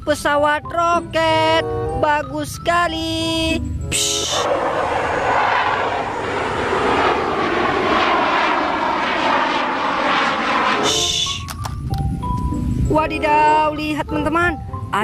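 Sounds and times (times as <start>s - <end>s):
fighter jet flying past: 4.1s - 12.0s.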